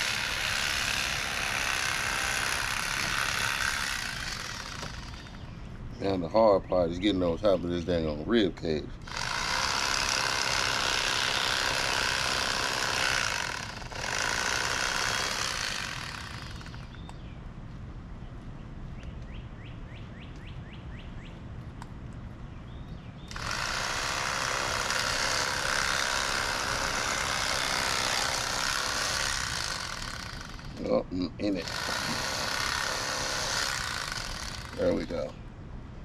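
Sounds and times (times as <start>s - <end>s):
electric fillet knife running: 0.0s - 5.3s, 9.1s - 16.9s, 23.3s - 30.8s, 31.6s - 35.1s.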